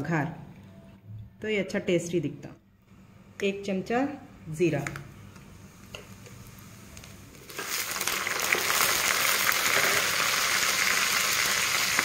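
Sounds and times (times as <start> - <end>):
oil sizzling with onion: 5.5 - 12.0.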